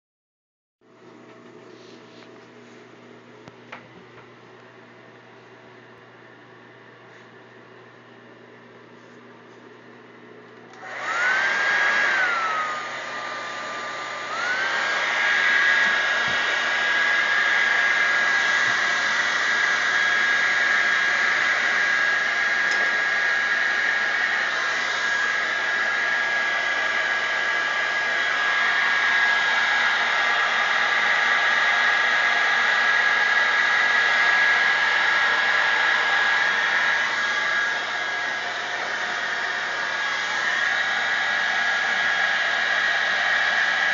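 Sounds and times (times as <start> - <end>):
hair dryer blowing: 8.8 - 43.9.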